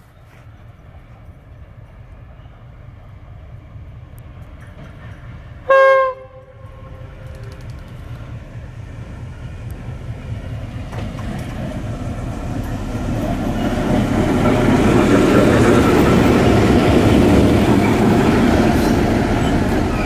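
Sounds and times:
train running noise: 0:00.0 - 0:20.0
locomotive horn blast: 0:05.7 - 0:07.5.

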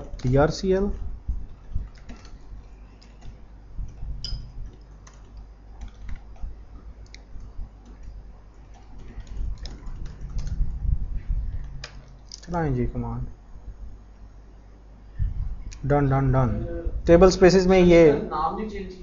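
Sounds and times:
low steady background hum: 0:00.0 - 0:19.0
computer keyboard typing: 0:01.6 - 0:10.8.

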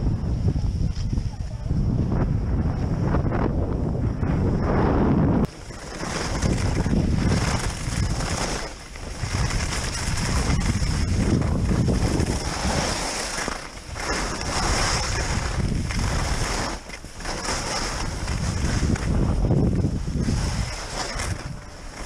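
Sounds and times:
wind buffeting microphone: 0:00.0 - 0:22.0
skis sliding over snow: 0:04.7 - 0:22.0.

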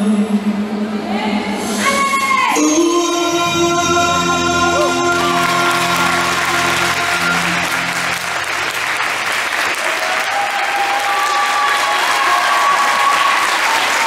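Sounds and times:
music: 0:01.8 - 0:09.9
audience applauding: 0:04.8 - 0:14.0.

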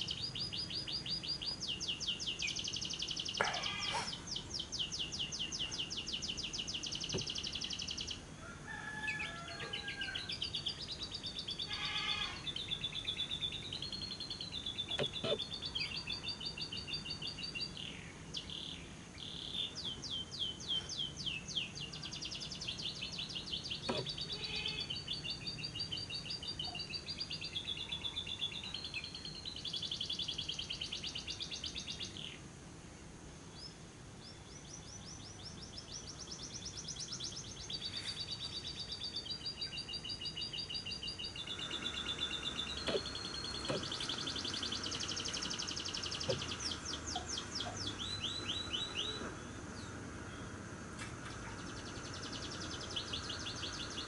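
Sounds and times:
lovebird fast trilling song: 0:35.8 - 0:50.6.

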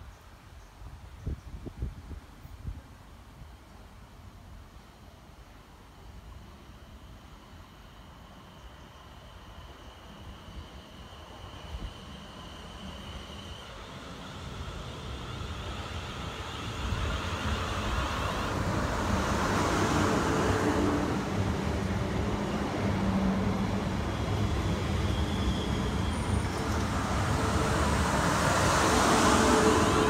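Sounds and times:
train wheels rumbling on rail: 0:08.6 - 0:30.0.

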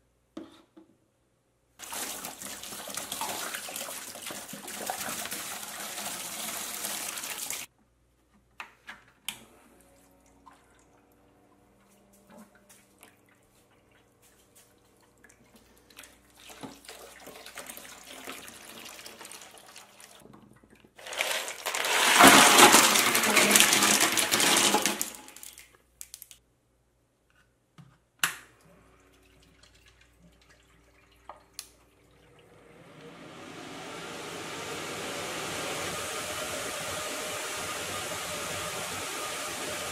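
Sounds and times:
water running into plastic tub: 0:01.8 - 0:07.7, 0:12.4 - 0:25.7, 0:28.9 - 0:32.7, 0:34.2 - 0:39.9
ice cubes rattling splash: 0:21.0 - 0:25.7
fans rushing air: 0:32.5 - 0:39.9.

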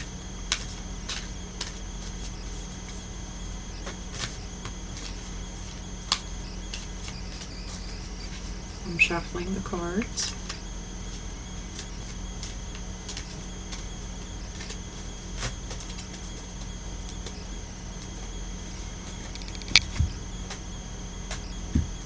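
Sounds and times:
steady high whine: 0:00.0 - 0:22.0
steady low hum: 0:00.0 - 0:22.0
cards being shuffled: 0:19.3 - 0:20.0.

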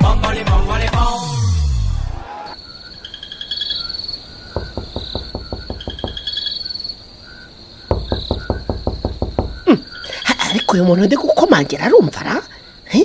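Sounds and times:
high chirping: 0:02.5 - 0:11.1
rapid knocking on a door: 0:04.5 - 0:06.7, 0:07.9 - 0:09.8.

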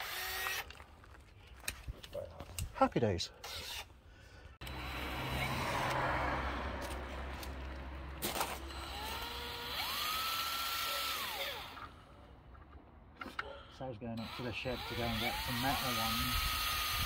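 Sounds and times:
cordless drill whining: 0:00.0 - 0:00.8, 0:03.4 - 0:03.9, 0:04.6 - 0:05.6, 0:08.4 - 0:12.1, 0:14.2 - 0:17.0.

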